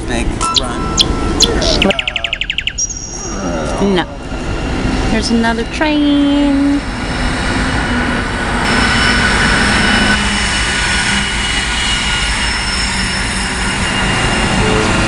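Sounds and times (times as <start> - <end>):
train wheels rumbling on rails: 3.5 - 15.0
high-pitched wheel squeal: 6.8 - 15.0.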